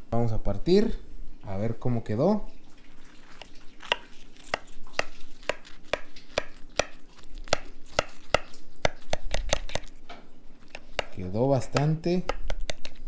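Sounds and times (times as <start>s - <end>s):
knife sawing through crisp cheese: 3.1s - 10.0s.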